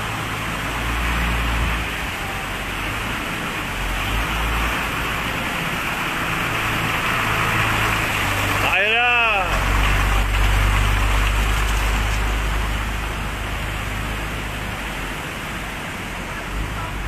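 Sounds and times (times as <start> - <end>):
floodwater rushing in channel: 0.0 - 17.0.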